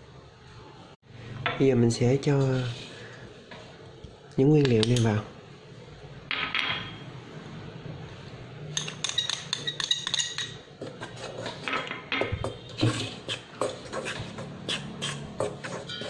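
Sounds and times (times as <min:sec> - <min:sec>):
metal spoon clinking on dishes: 0:08.7 - 0:10.7, 0:15.7 - 0:16.0.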